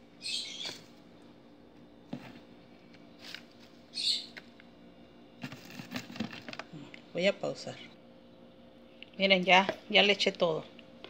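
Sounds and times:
plastic bottle crinkling: 0:05.4 - 0:06.8.

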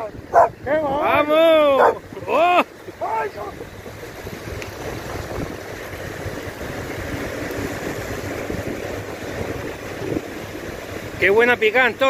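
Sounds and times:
surf breaking on beach: 0:00.0 - 0:12.0
wind buffeting microphone: 0:00.0 - 0:12.0.

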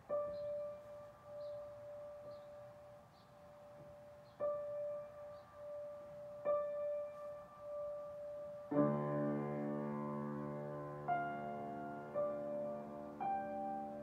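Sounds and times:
piano chord with bass notes: 0:04.4 - 0:14.0.

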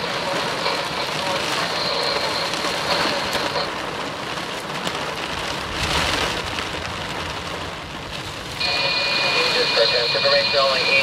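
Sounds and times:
heavy rain on car roof: 0:00.0 - 0:11.0.

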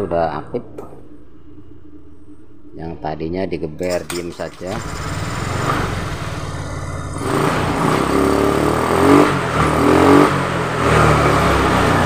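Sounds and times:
scooter engine revving: 0:04.6 - 0:12.0.

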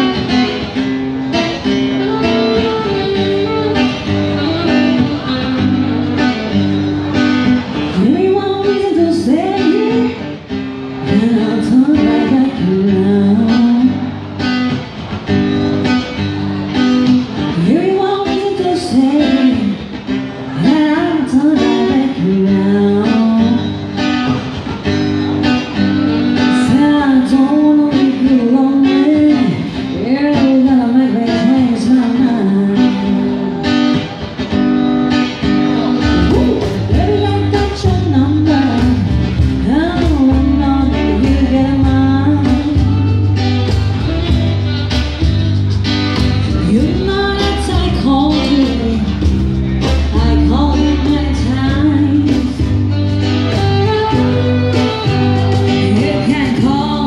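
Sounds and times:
acoustic guitar: 0:00.0 - 0:57.0
cajon: 0:34.0 - 0:57.0
electric bass line: 0:35.5 - 0:57.0
person singing: 0:35.8 - 0:45.3, 0:46.4 - 0:57.0.

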